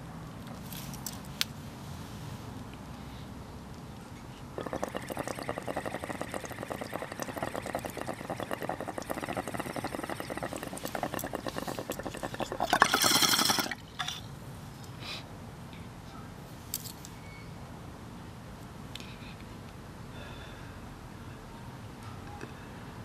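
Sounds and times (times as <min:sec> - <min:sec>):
bong water bubbling: 0:04.6 - 0:13.8.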